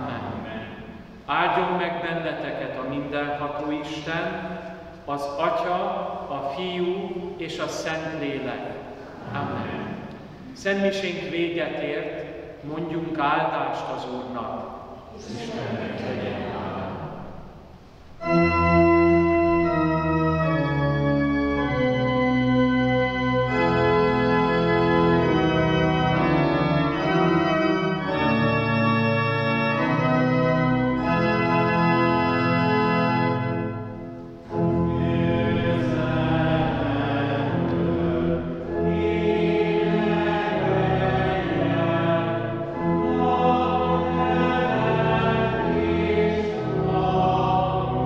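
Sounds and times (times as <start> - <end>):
church organ chords: 0.0 - 48.0.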